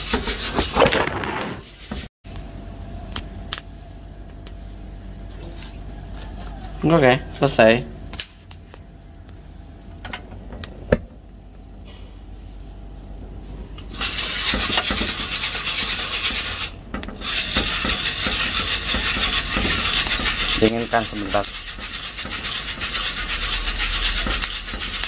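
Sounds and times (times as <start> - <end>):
coffee beans rasping in drum: 13.9 - 25.0.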